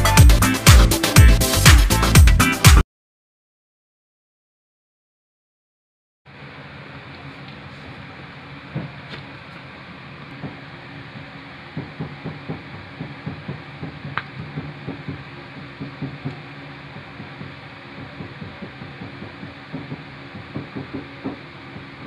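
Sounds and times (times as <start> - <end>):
bass thumps through loudspeaker: 0.0 - 2.8, 10.4 - 22.0
amplifier hiss and hum: 6.3 - 22.0.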